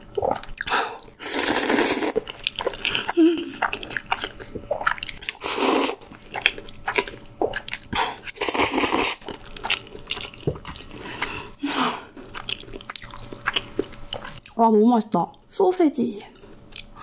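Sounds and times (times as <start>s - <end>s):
wet chewing: 0.1s - 14.6s
slurping noodles: 0.2s - 9.3s.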